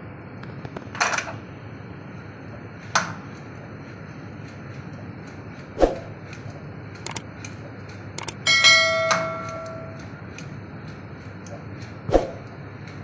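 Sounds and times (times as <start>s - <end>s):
steady background noise: 0.0s - 13.0s
knocks and clicks: 7.0s - 7.3s, 8.2s - 10.0s
struck metal ringing like a bell: 8.4s - 10.0s.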